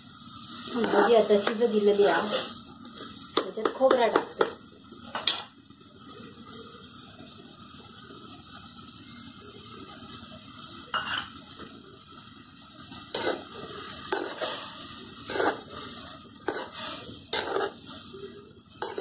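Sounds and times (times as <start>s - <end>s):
low sizzle: 0.0s - 19.0s
spoon stirring and scraping in pan: 0.3s - 6.3s, 12.7s - 19.0s.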